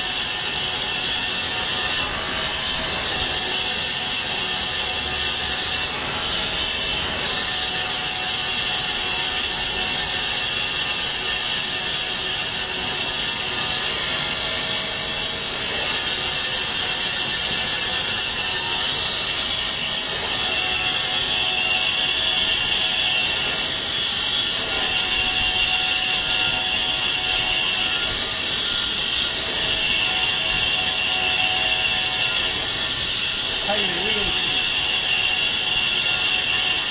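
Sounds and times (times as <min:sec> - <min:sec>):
band saw cutting foam: 0:00.0 - 0:36.9.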